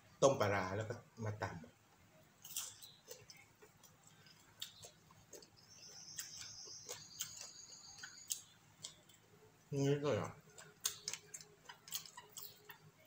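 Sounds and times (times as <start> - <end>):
chewing clicks: 2.4 - 9.3, 10.2 - 12.9.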